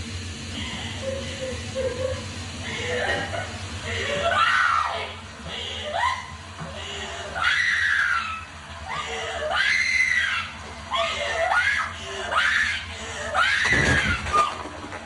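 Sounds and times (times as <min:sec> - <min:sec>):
woman screaming: 0:03.9 - 0:05.2, 0:05.8 - 0:06.4, 0:07.2 - 0:14.5.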